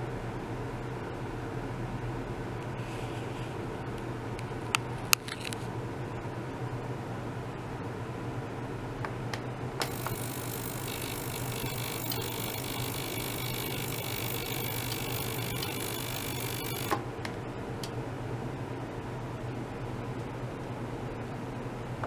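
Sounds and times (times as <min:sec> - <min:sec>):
ultrasonic cleaner hiss and whine: 0:09.8 - 0:18.6.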